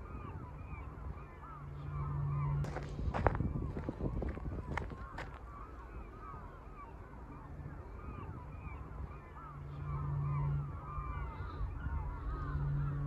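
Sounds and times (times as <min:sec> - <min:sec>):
flock of birds calling: 0:00.0 - 0:13.0
low engine hum: 0:00.0 - 0:13.0.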